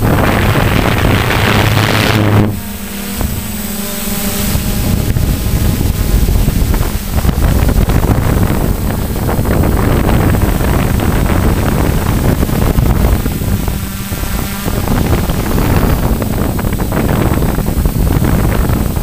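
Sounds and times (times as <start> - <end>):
model aircraft propellers humming: 0.0 - 19.0
wind rushing over microphone: 0.0 - 19.0.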